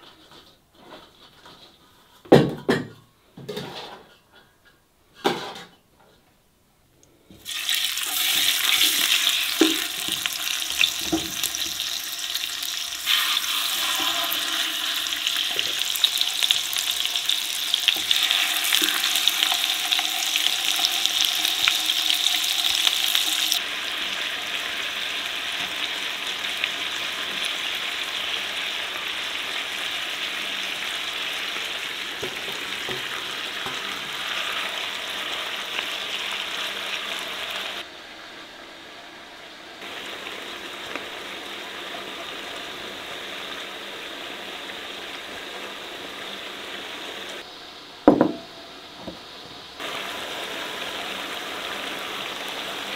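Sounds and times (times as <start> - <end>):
chicken sizzling in hot oil: 7.4 - 38.3, 39.8 - 47.5, 49.7 - 52.9
soft knocks: 48.1 - 49.3.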